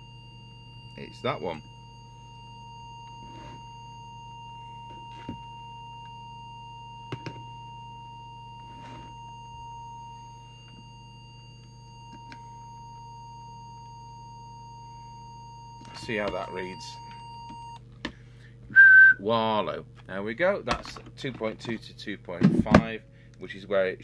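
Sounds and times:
steady test tone: 0:00.0 - 0:17.8
mains hum: 0:00.0 - 0:24.0.

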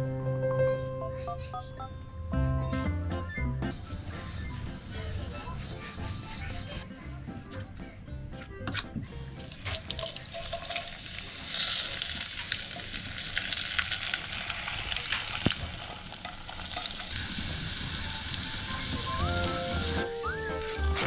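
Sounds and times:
oil bubbling in bowl: 0:09.4 - 0:20.0
hot oil sizzling: 0:09.4 - 0:21.0.

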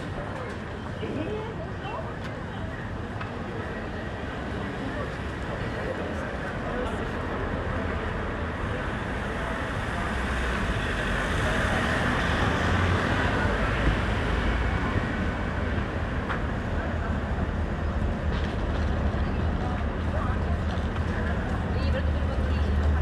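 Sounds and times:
city street traffic: 0:00.0 - 0:23.0.

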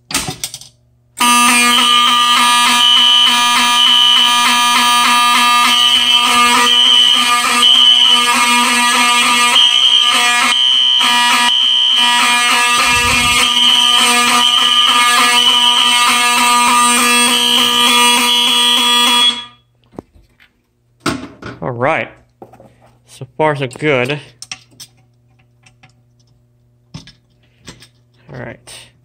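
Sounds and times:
fire alarm buzzing tone: 0:01.2 - 0:19.7
higher alarm horn tone: 0:01.2 - 0:19.7.

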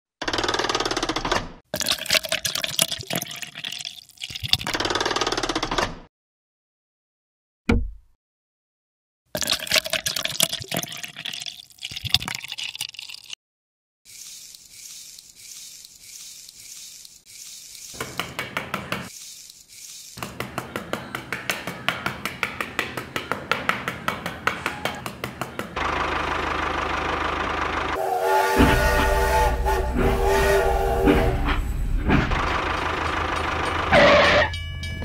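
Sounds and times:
train rumble: 0:26.6 - 0:33.9
train whistle: 0:28.0 - 0:31.8, 0:33.9 - 0:34.6.

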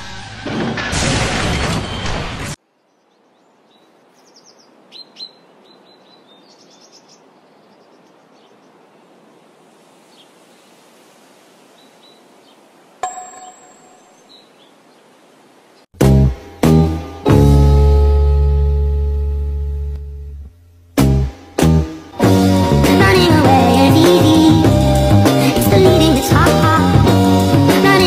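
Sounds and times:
high bird chirps: 0:02.9 - 0:08.6, 0:13.0 - 0:14.8
metallic ding: 0:13.0 - 0:14.1.

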